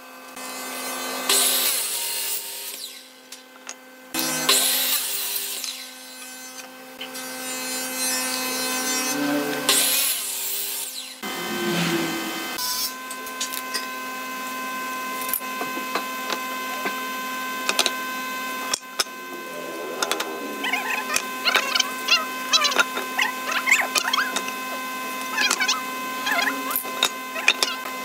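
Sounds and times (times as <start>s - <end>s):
miter saw cutting wood: 0.2s - 28.0s
steady hum: 19.1s - 26.8s.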